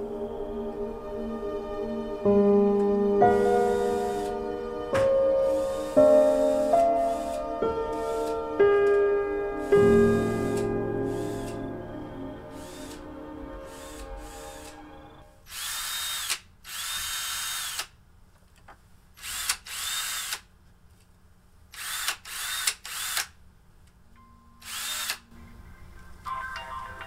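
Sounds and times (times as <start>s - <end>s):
background music: 0.0s - 15.4s, 24.2s - 27.0s
power drill whining: 3.6s - 4.5s, 5.4s - 8.4s, 9.6s - 11.6s, 12.5s - 14.9s, 15.5s - 17.9s, 19.2s - 20.4s, 21.8s - 23.3s, 24.6s - 25.3s.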